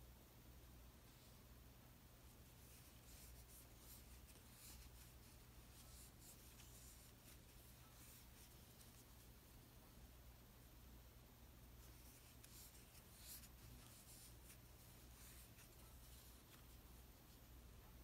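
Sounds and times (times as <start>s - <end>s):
low steady hum: 0.0s - 18.0s
crochet hook rustling yarn: 1.0s - 1.5s, 2.2s - 10.0s, 11.7s - 17.7s.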